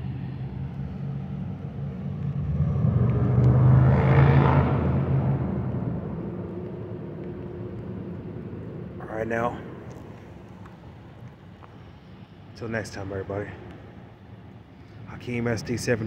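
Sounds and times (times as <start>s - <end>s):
diesel train engine drone: 0.0s - 16.0s.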